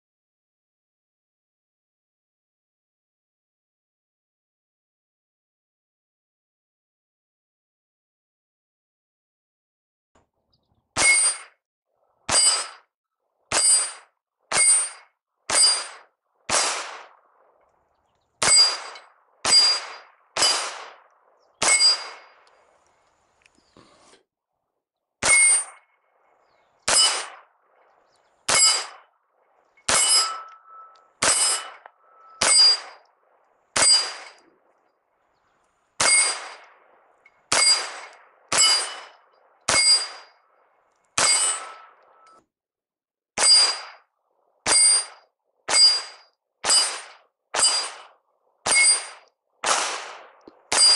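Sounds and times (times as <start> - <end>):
pistol shots with metallic ring: 11.0 - 11.6, 12.3 - 12.9, 13.5 - 17.6, 18.4 - 22.6, 25.2 - 33.1, 33.7 - 34.6, 36.0 - 40.6, 41.2 - 42.4, 43.4 - 50.9.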